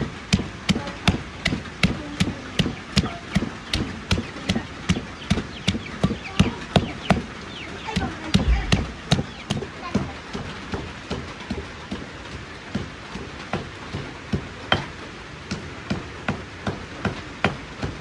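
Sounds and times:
knife chopping on board: 0.3 - 6.5.

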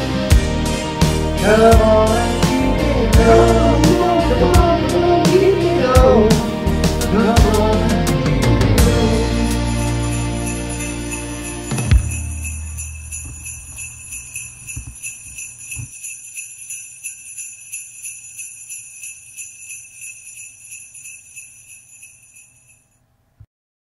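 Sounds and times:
sleigh bells shaking: 0.7 - 6.5, 8.8 - 23.0
music final hit: 11.6 - 13.6.

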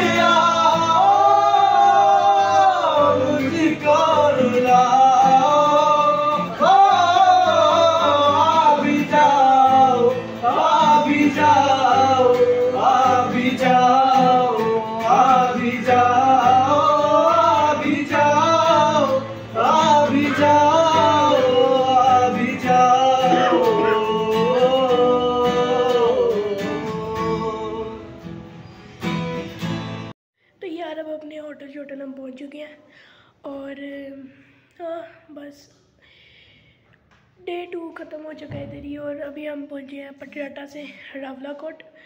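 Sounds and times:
man singing slow song: 0.0 - 28.4
acoustic guitar strumming: 0.0 - 30.1.

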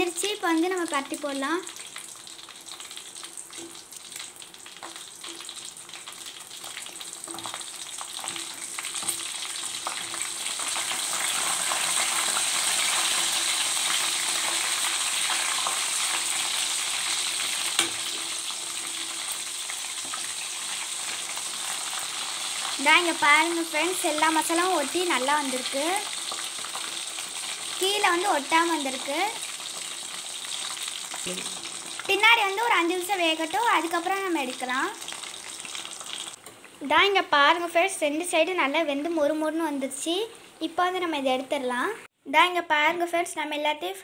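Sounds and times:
fish frying in hot oil: 0.0 - 37.0
metal spatula turning food: 3.3 - 22.0.

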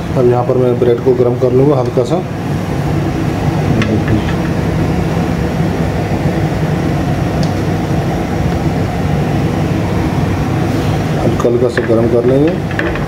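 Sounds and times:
machine hum with rumble: 0.0 - 13.0.

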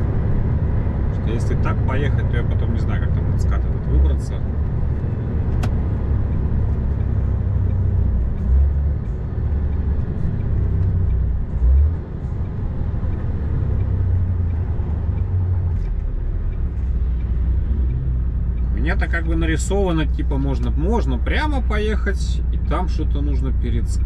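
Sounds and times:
truck engine and tyres rumbling: 0.0 - 24.0.

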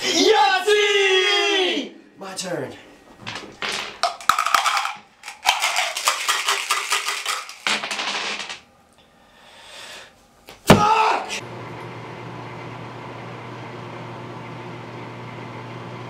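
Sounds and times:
dice clicking on wooden floor: 3.3 - 8.6
dice rattling in plastic cup: 3.3 - 8.6.

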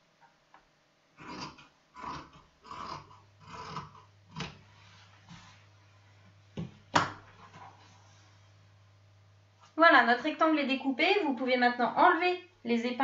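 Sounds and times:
shears cutting fabric: 1.2 - 4.5.

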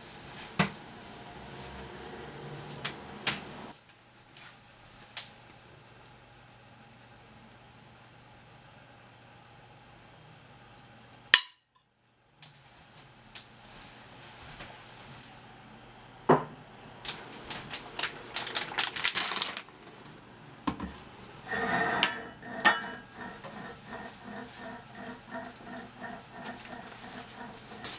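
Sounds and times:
pots and pans clattering: 20.7 - 27.9.

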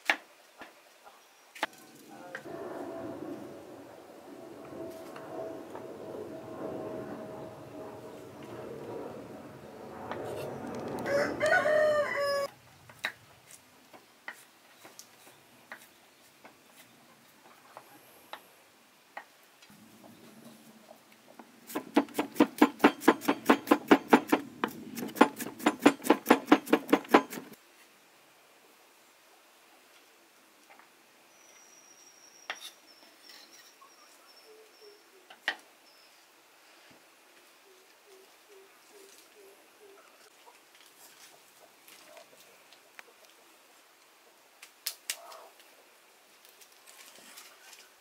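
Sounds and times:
rooster crowing: 10.9 - 12.6
blade tapping board: 21.8 - 27.6
cleaver chopping on wooden board: 21.8 - 27.6.

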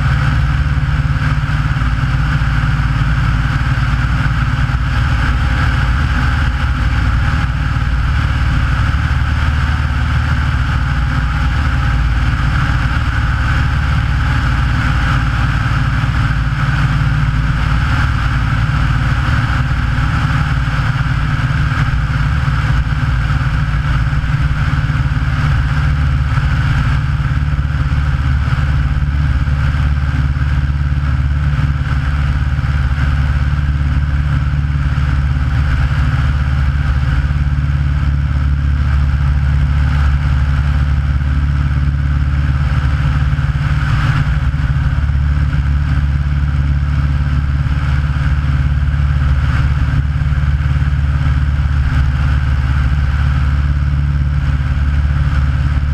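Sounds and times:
aircraft engine and propeller: 0.0 - 55.9.

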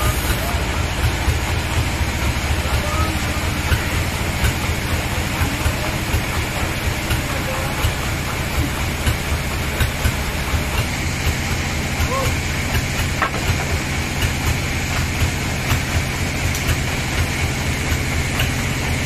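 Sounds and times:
sawmill machinery pulsing drone: 0.0 - 19.0
faint voices: 2.5 - 8.8.

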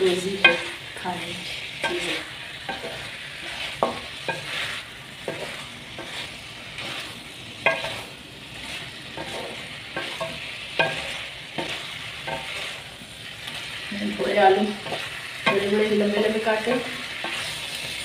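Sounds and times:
spoon scraping metal pan: 0.0 - 13.8, 14.6 - 18.0
meat and potatoes sizzling: 0.0 - 18.0.

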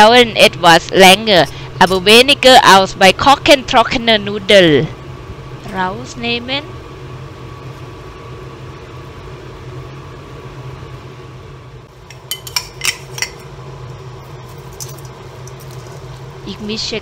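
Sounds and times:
steady low hum: 0.0 - 17.0
water boiling in pot: 11.9 - 17.0
metal bowl clanking: 12.0 - 13.5.

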